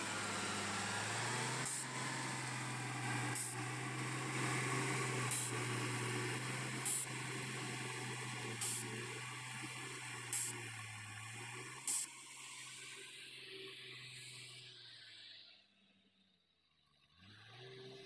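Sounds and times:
diesel engine running: 0:00.0 - 0:12.1.

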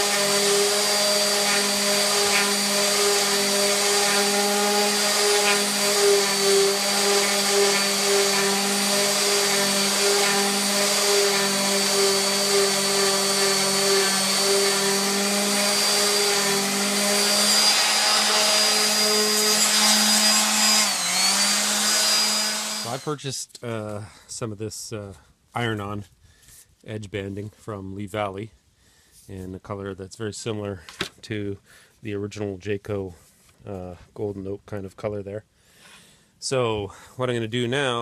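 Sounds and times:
orbital sander running: 0:00.0 - 0:23.1.

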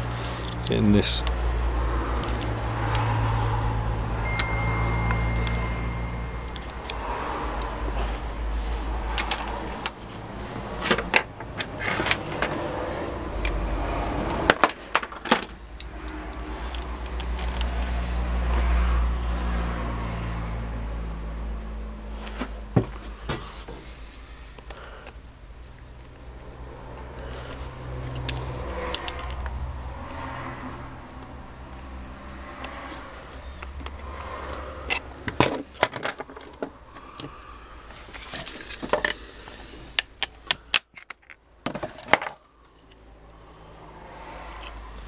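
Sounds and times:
screwdriver clinking on metal: 0:35.9 - 0:36.5, 0:40.6 - 0:41.2.

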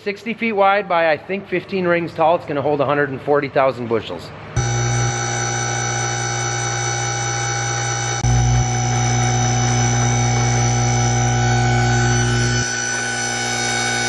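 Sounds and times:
loud electrical hum: 0:00.7 - 0:14.0.

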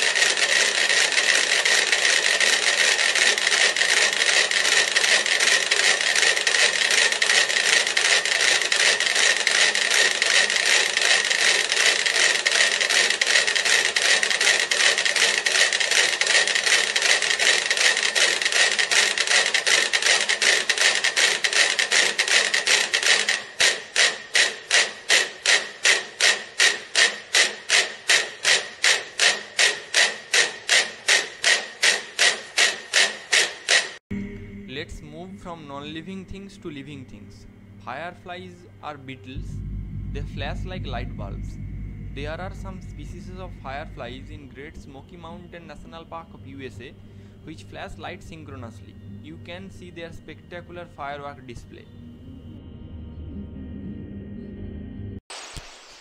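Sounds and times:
metronomes ticking: 0:34.2 - 0:51.8.

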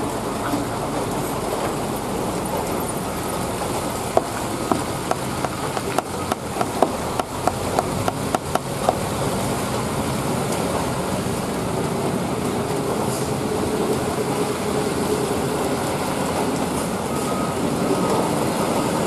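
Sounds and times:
truck engine running: 0:00.0 - 0:15.6
cars and motorcycles passing: 0:03.1 - 0:16.7.

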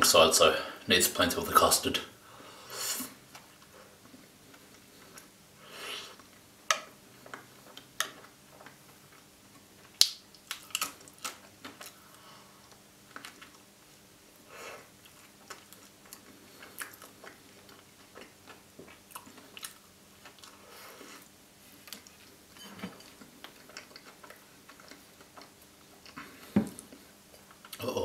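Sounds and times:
person chewing: 0:09.8 - 0:13.7, 0:14.8 - 0:27.9.

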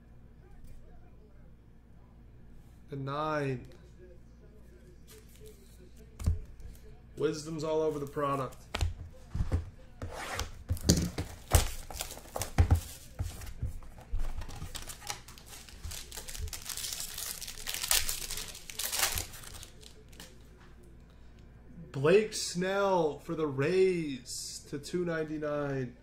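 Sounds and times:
foil wrapper tearing and crinkling: 0:11.4 - 0:12.6, 0:14.4 - 0:20.3.

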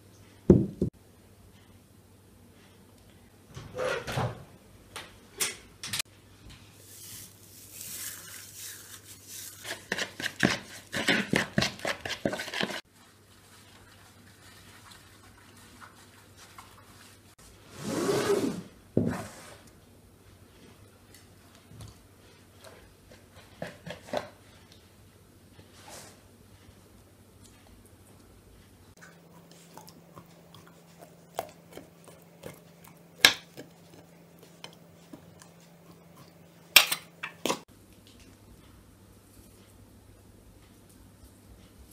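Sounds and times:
spoon scraping plastic bowl: 0:08.0 - 0:12.8.

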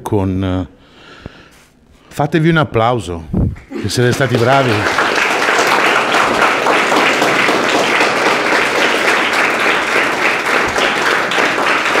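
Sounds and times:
children applauding: 0:03.6 - 0:12.0.

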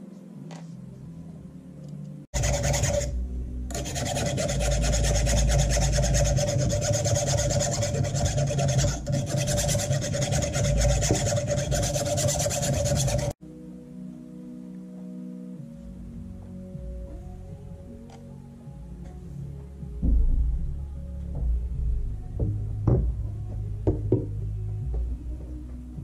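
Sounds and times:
hand file rasping on steel: 0:02.4 - 0:03.1, 0:03.7 - 0:13.4.

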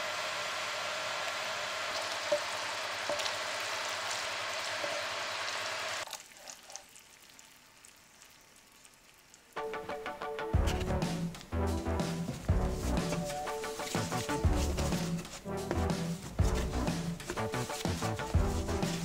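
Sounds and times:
sauce sizzling in a pan: 0:00.0 - 0:06.1
music: 0:09.6 - 0:19.0
wooden spoon stirring: 0:10.6 - 0:19.0.

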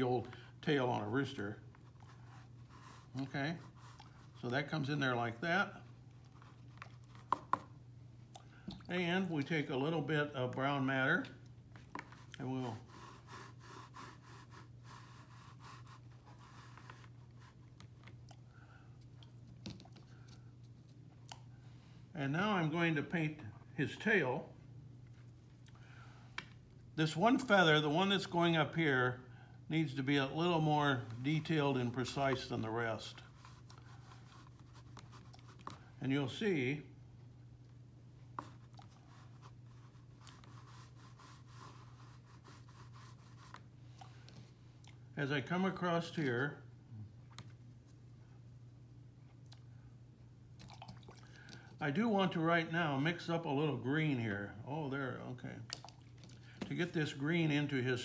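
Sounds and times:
low steady hum: 0:00.0 - 0:58.0
paintbrush scratching on paper: 0:01.8 - 0:04.5, 0:12.0 - 0:17.7, 0:31.2 - 0:35.8, 0:38.4 - 0:43.7, 0:47.5 - 0:49.0.

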